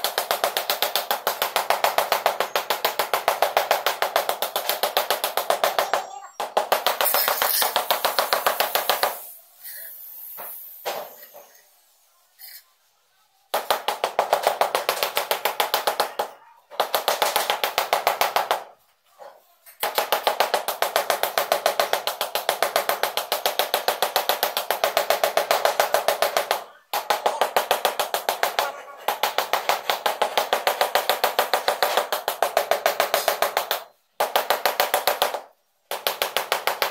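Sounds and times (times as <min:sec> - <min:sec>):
rubber mallet tapping tile: 0:00.0 - 0:09.3, 0:19.9 - 0:36.9.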